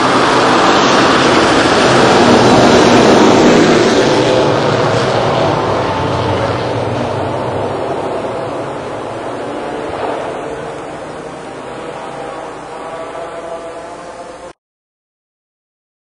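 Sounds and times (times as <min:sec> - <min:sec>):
rally car passing on gravel: 0:00.0 - 0:12.3.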